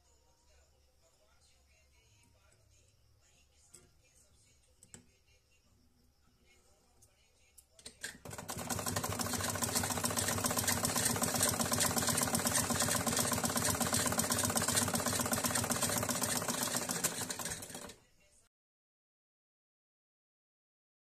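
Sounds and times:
sewing machine needle clattering: 7.8 - 18.0.

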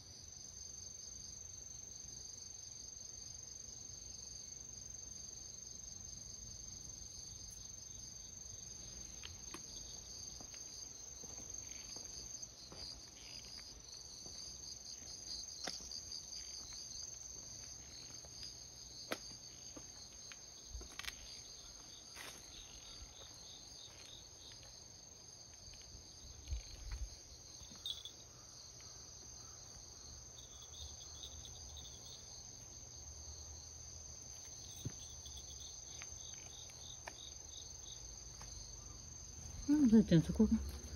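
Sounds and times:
insects trilling: 0.0 - 40.9.

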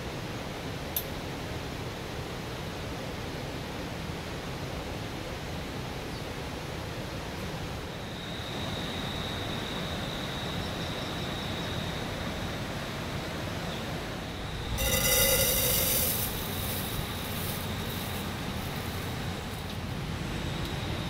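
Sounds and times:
thin high steady tone: 14.2 - 21.0
rain falling in forest: 16.2 - 21.0.

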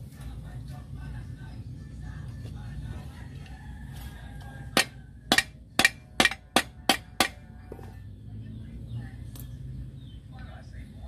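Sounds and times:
hammer striking metal rivets: 4.8 - 7.4.

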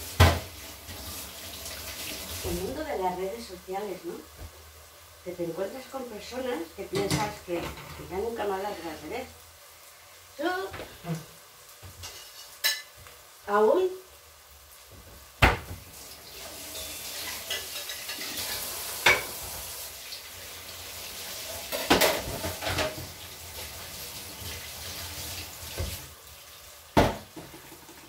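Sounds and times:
steady hiss: 8.2 - 28.0
utensils clinking against dishes: 12.0 - 13.0, 16.7 - 19.5.

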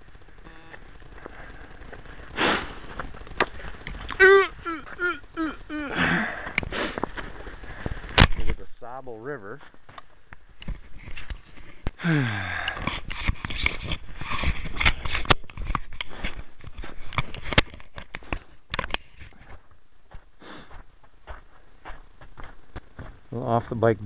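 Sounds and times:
short falling groan: 4.0 - 6.6
crunching and scraping in snow: 6.0 - 9.9.

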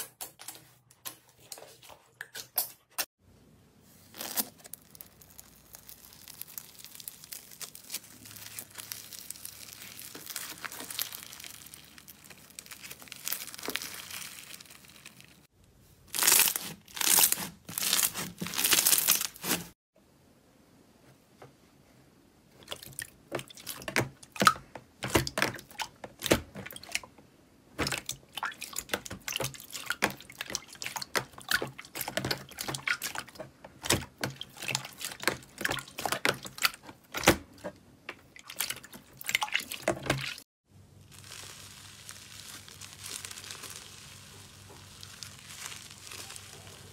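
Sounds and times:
slime crunching squeezes: 4.0 - 15.5, 16.1 - 19.7, 41.0 - 46.9
slime crackling: 4.1 - 15.5, 16.1 - 19.8, 41.0 - 46.9.

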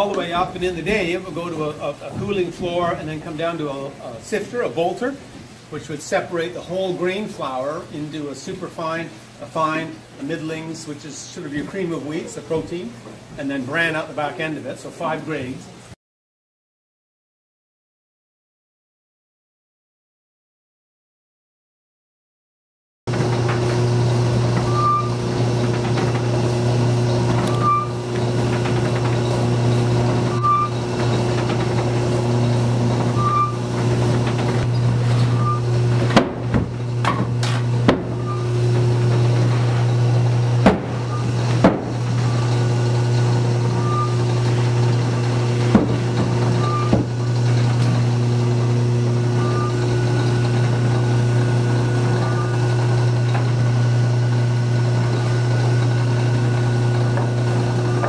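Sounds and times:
mill machinery low hum: 0.0 - 13.3, 23.1 - 58.0
sharp wooden knocks and clicks: 36.0 - 38.2, 40.6 - 42.0, 45.6 - 46.3.

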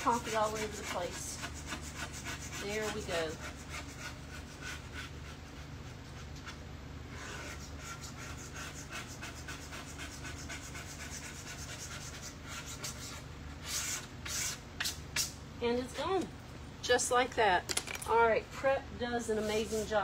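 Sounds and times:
sponge scrubbing wooden surface: 0.0 - 5.7
steady low hum: 0.0 - 20.0.

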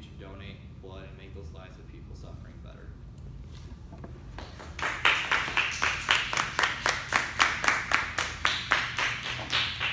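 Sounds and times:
audience clapping: 4.3 - 9.9.

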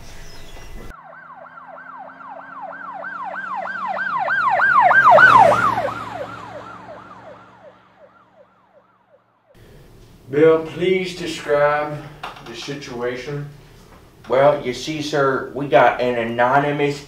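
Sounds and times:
siren yelping: 0.9 - 9.6.

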